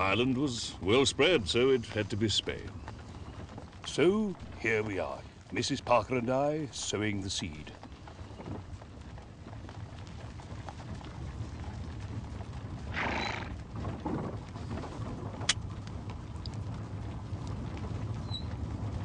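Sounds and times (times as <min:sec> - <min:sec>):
horse-drawn coach rumble: 0:00.0 - 0:19.0
sharp crack: 0:15.4 - 0:15.7.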